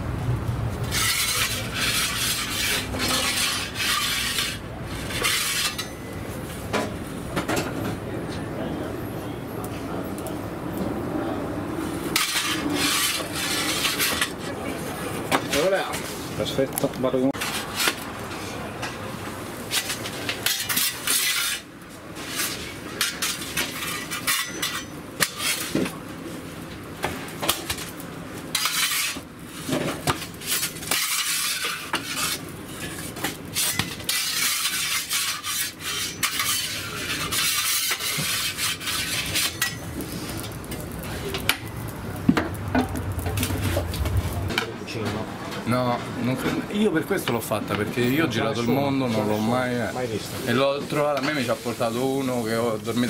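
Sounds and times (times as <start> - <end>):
metal peel scraping on stone: 0.8 - 6.2, 12.2 - 14.6, 19.6 - 25.8, 28.5 - 41.7.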